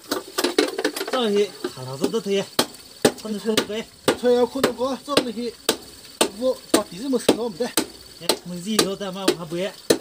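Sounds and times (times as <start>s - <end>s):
machete chopping bamboo: 2.0s - 10.0s.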